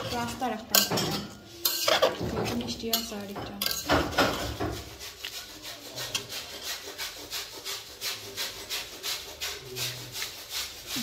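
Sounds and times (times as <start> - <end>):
spatula scraping a pan: 0.0 - 11.0.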